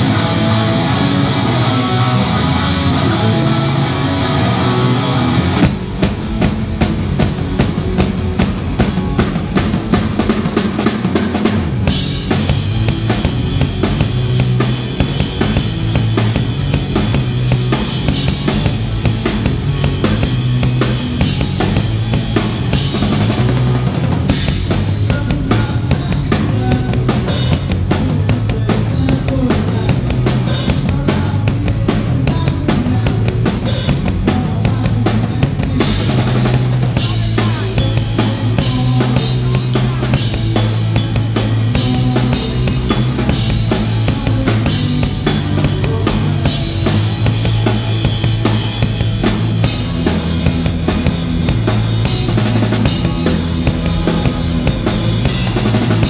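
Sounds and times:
rock band playing: 0.0s - 56.0s
drum beat: 5.7s - 26.3s, 35.8s - 56.0s.

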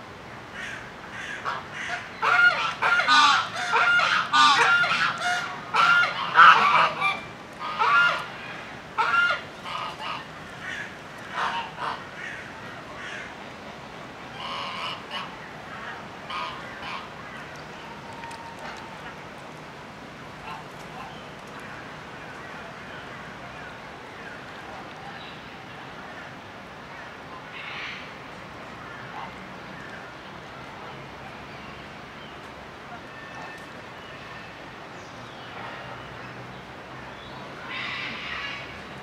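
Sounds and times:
geese honking: 1.2s - 8.4s, 9.0s - 12.4s, 14.4s - 17.1s.

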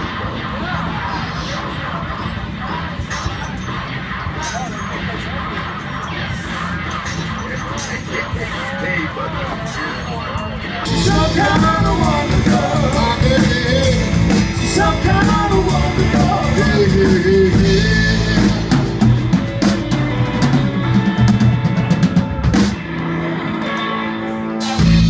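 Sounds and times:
live rock band playing: 10.8s - 25.0s
wavering lead melody: 10.8s - 25.0s.

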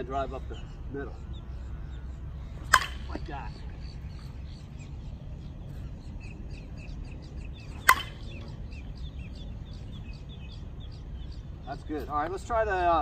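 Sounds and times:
birds chirping: 0.0s - 13.0s
bat hitting softball ping: 2.6s - 3.2s, 7.8s - 8.4s.

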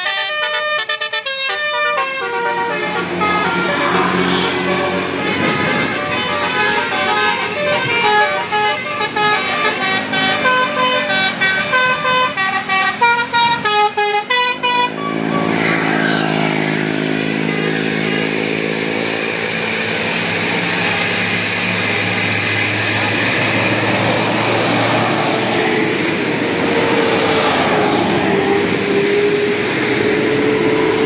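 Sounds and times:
musical bus air horn melody: 0.0s - 16.5s
bus diesel engine passing: 0.0s - 31.0s.

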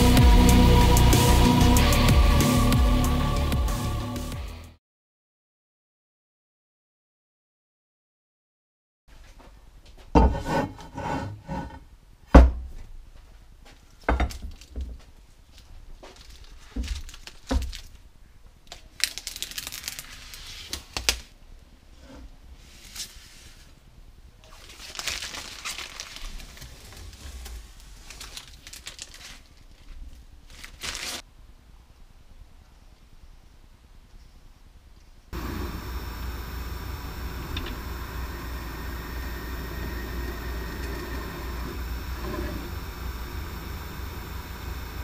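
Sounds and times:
metal plate thudding on workbench: 10.2s - 10.5s
plastic film peeling off: 16.2s - 18.0s, 18.7s - 21.3s, 24.5s - 31.2s.

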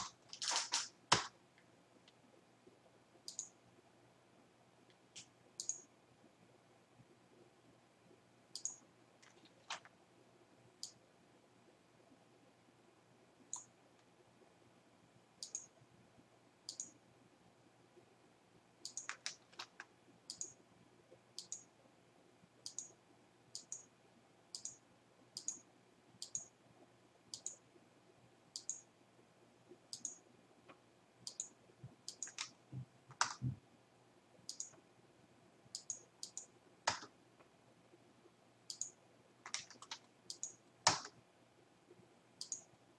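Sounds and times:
computer mouse clicking: 0.0s - 1.4s, 3.2s - 3.6s, 4.9s - 5.9s, 8.5s - 9.9s, 10.8s - 11.0s, 13.5s - 13.7s, 15.4s - 15.8s, 16.7s - 17.0s, 18.8s - 20.6s, 21.4s - 21.7s, 22.6s - 23.9s, 24.5s - 24.8s, 25.4s - 25.6s, 26.2s - 26.5s, 27.3s - 27.6s, 28.6s - 28.9s, 29.9s - 33.6s, 34.5s - 34.8s, 35.7s - 37.1s, 38.7s - 41.2s, 42.4s - 42.7s.

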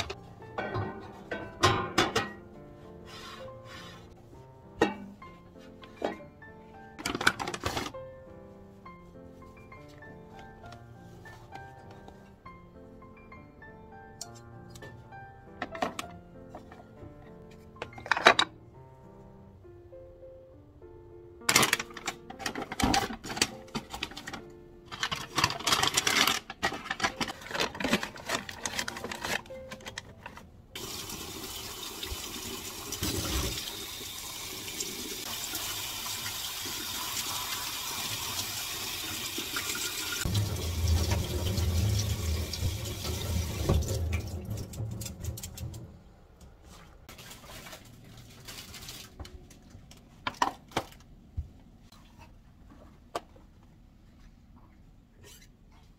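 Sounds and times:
paper bags rustling: 7.0s - 8.0s, 21.5s - 30.9s, 46.7s - 51.0s
tap running into a sink: 40.3s - 45.8s.

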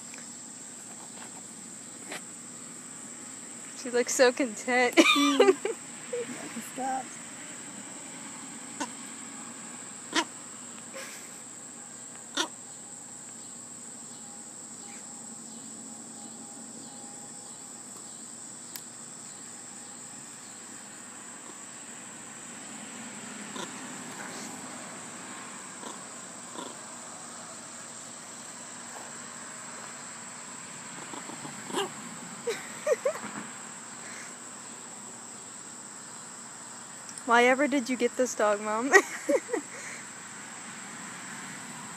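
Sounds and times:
crickets trilling: 0.0s - 41.9s.

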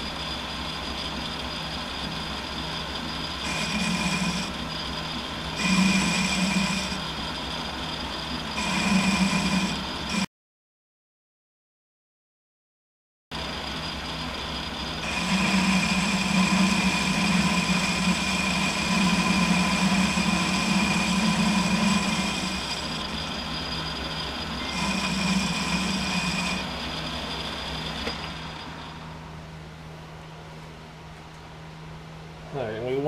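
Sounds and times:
lathe tool cutting whine: 0.0s - 10.3s, 13.4s - 29.4s
metal lathe humming: 0.0s - 10.3s, 13.4s - 29.5s.

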